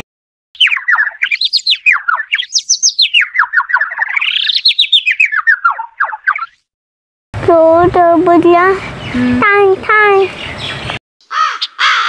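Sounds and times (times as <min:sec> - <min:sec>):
sparrow chirping: 0:00.6 - 0:06.6, 0:10.2 - 0:12.0.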